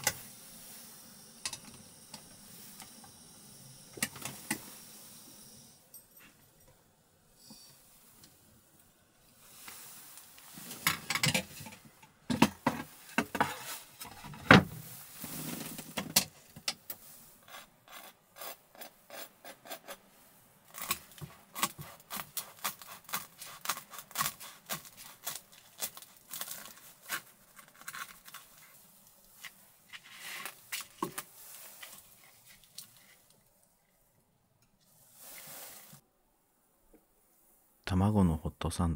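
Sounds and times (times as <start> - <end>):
utensils scraping and rubbing: 12.8 - 14.4, 17.4 - 20.1.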